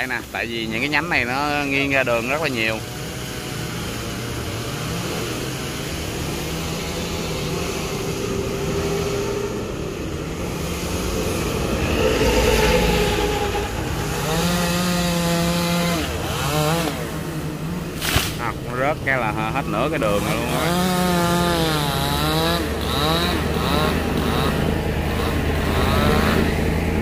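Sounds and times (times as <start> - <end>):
chainsaw revving: 0.0 - 27.0
low rumble: 9.5 - 16.3.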